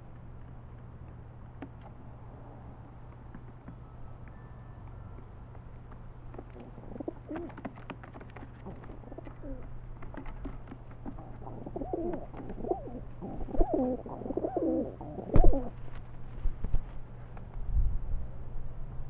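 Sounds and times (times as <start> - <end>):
pigeons cooing: 6.4 - 15.8.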